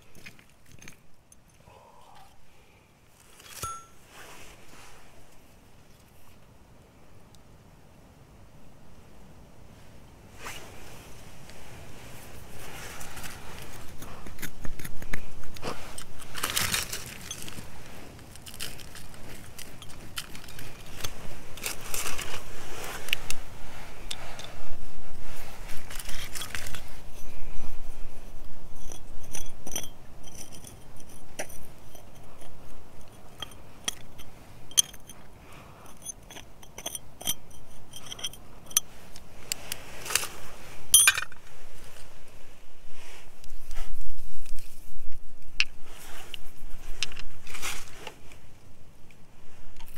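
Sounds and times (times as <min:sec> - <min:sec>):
fingers scraping gravelly soil: 0:10.3 - 0:42.3, 0:45.7 - 0:48.4.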